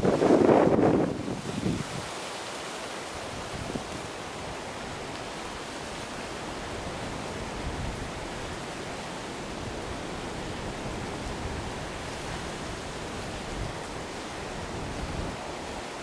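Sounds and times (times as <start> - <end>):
wind buffeting microphone: 0.0 - 2.1, 3.2 - 16.0
ocean surf: 0.0 - 16.0
wind: 0.0 - 16.0.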